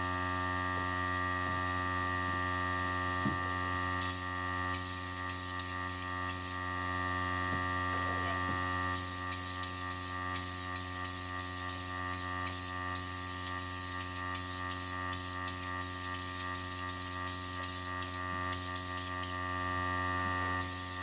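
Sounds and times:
spray gun hissing in bursts: 4.0s - 6.7s, 9.0s - 19.6s, 20.6s - 21.0s.

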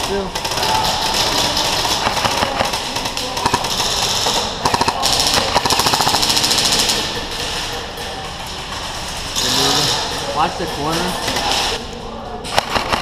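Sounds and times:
airsoft rifle firing bursts: 0.0s - 7.2s.

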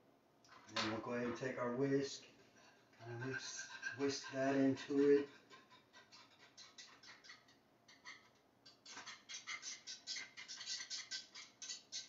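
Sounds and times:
wire whisk scraping a pan: 2.6s - 12.0s.

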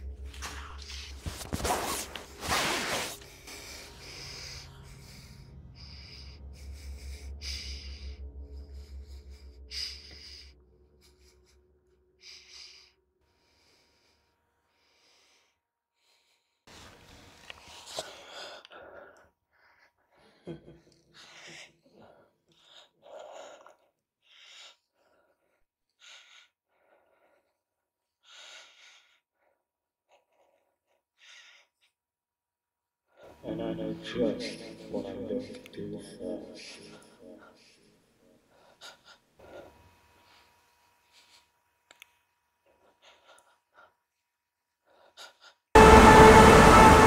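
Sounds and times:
low pulsing rumble: 0.0s - 1.5s, 3.3s - 11.3s
heavy ragged breathing: 0.0s - 20.4s
person gasping breaths: 3.2s - 11.6s.

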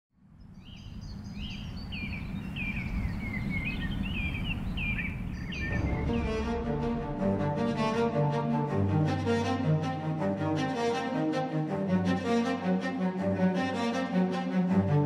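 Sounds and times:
birds chirping: 0.3s - 6.8s
music: 5.6s - 15.0s.

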